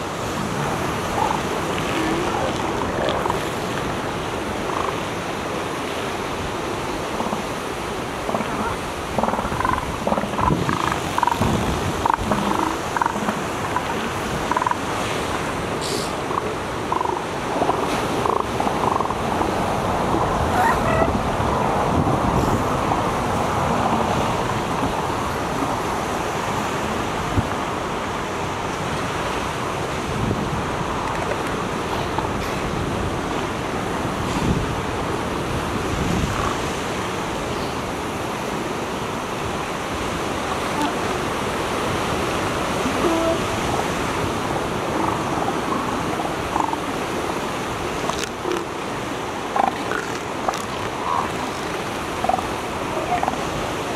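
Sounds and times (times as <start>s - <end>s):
ocean surf breaking: 0.0s - 53.9s
elephant seal calls: 1.0s - 3.6s, 8.2s - 19.3s, 20.5s - 21.2s, 44.7s - 47.0s, 49.5s - 53.6s.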